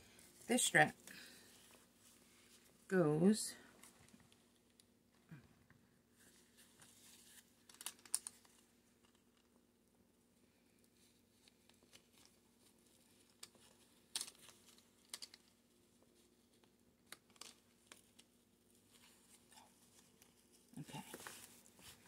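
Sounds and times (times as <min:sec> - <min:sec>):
rustling of strap: 0:00.0 - 0:02.9, 0:06.1 - 0:09.5, 0:10.8 - 0:22.0
small clicks and scratches: 0:06.3 - 0:09.6, 0:10.7 - 0:22.0.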